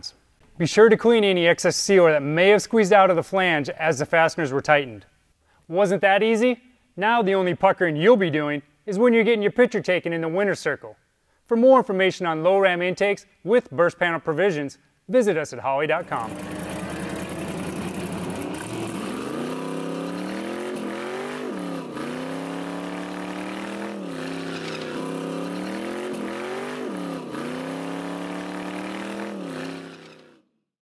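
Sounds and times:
race car engine revving: 16.0 - 30.4.

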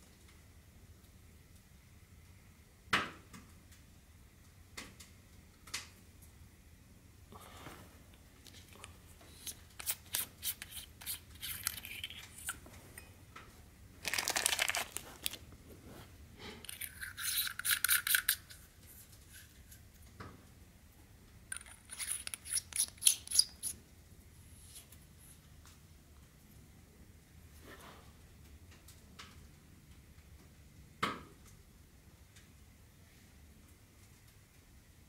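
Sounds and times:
metal threads clicking and rasping: 8.4 - 12.6, 16.6 - 18.6, 21.5 - 23.8
scraping rasp: 9.3 - 12.6.

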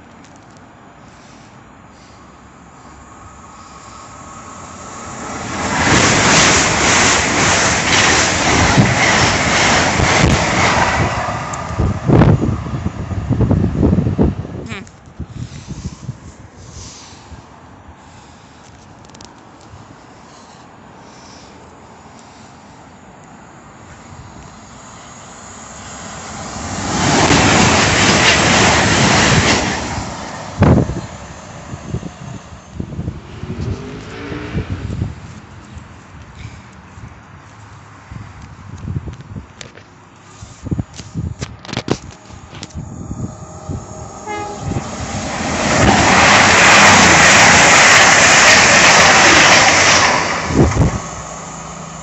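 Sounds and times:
train passing at speed: 0.8 - 14.7, 15.3 - 39.4, 40.2 - 52.0
wind gusts on microphone: 3.2 - 18.0, 25.8 - 51.5.

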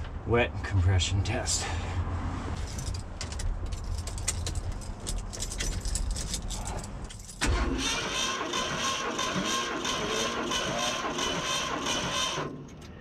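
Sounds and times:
keys rattling in ignition: 2.6 - 7.6
engine starter cranking: 7.4 - 12.8.

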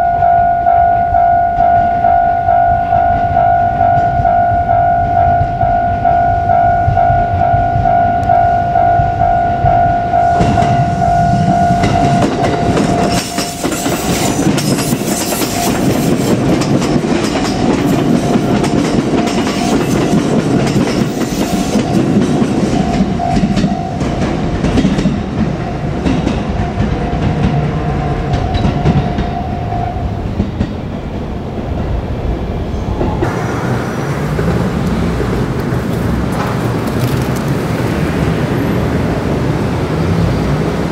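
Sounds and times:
level crossing bell ringing: 0.0 - 14.0
train wheels clattering: 10.3 - 32.0.

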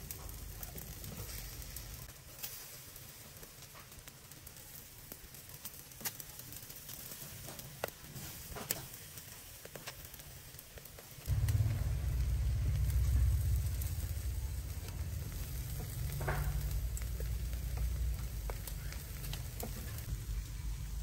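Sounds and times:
meat sizzling on a grill: 0.0 - 21.0
faint crackling: 5.5 - 21.0.

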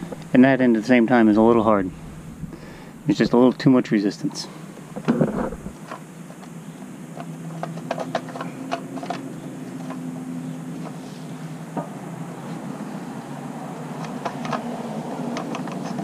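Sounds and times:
steady low hum: 0.0 - 16.0
wiring clicks and scrapes: 5.0 - 5.8.

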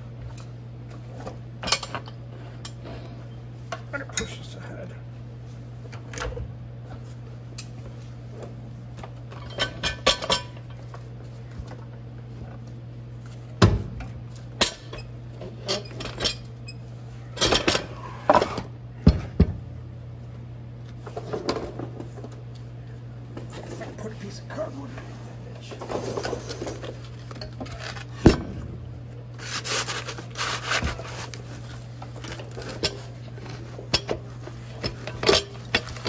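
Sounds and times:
steady low hum: 0.0 - 36.0
metal clanks and clinks: 9.3 - 10.8.

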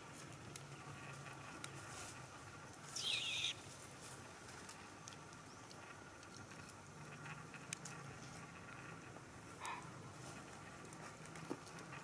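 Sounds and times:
monkey squealing: 3.0 - 3.6.

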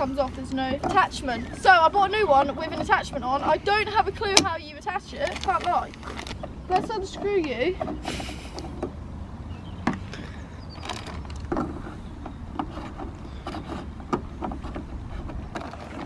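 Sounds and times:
fuel cap clicking and knocking: 2.6 - 4.6.

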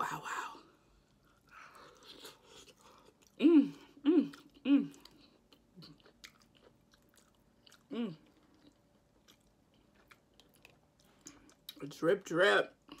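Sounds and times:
wet chewing and mouth clicks: 4.2 - 12.0.

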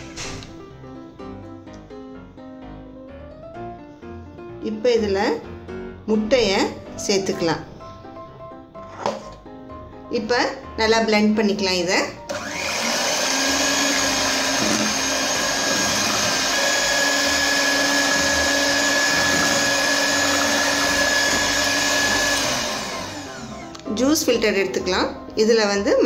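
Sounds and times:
electric hand mixer whining: 12.3 - 24.4.

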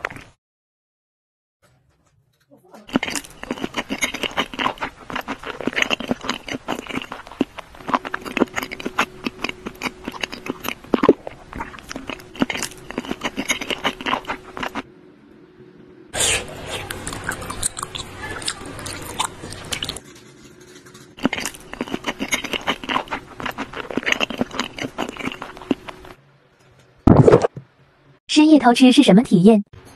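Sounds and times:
chewing and biting snacks: 2.8 - 14.9, 16.2 - 26.2.

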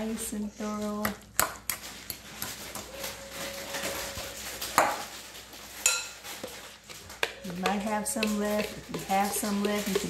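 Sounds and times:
utensils scraping glass bowl: 7.2 - 10.0.

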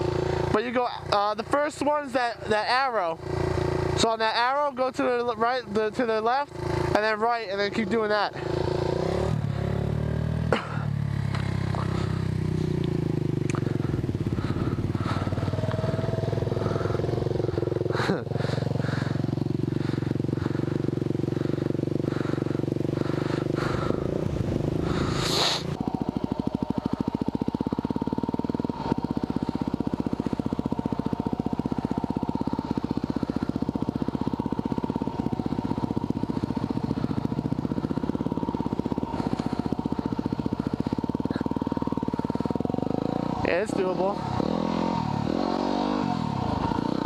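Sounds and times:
motorcycle engine idling and pulling away: 0.0 - 47.0.

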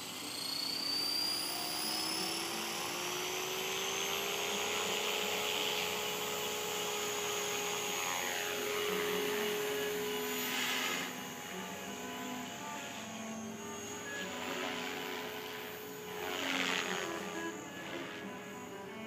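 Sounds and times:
rc helicopter rotor whine: 0.0 - 19.0.

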